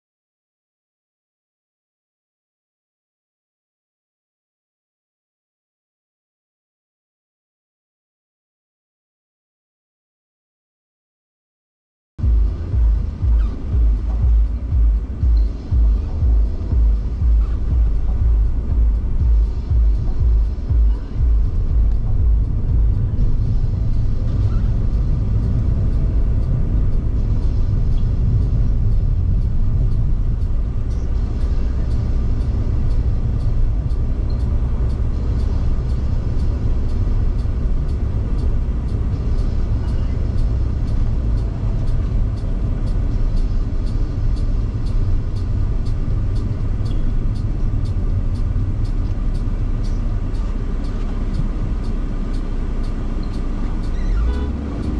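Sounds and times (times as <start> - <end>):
car engine and road noise: 12.2 - 54.9.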